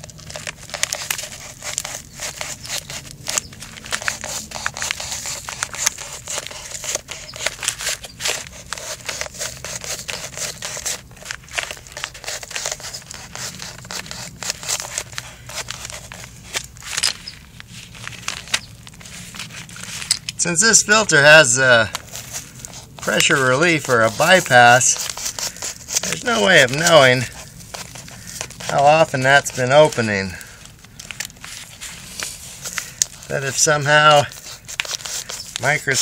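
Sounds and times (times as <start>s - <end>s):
paper crackling and tearing: 0.0s - 36.0s.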